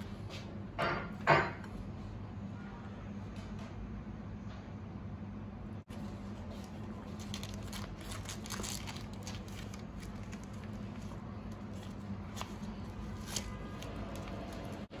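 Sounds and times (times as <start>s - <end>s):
leaves crinkling and rustling: 5.9s - 14.9s.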